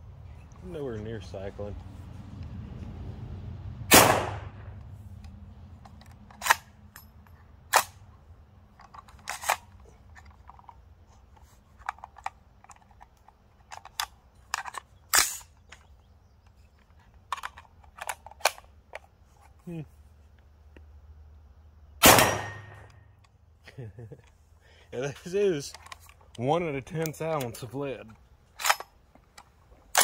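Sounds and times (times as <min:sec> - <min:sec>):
rifle shot with echo: 0:03.9 - 0:04.8, 0:22.0 - 0:22.9.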